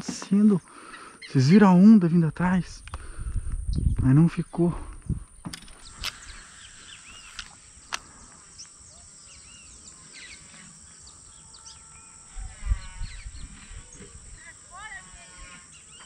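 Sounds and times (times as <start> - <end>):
small birds chirping: 0.0 - 16.0
sharp clicks: 4.9 - 8.7.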